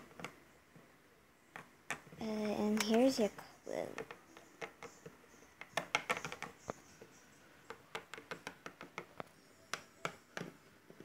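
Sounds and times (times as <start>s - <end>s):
plastic toys clicking on table: 1.5s - 3.2s, 3.8s - 6.8s, 7.7s - 11.0s.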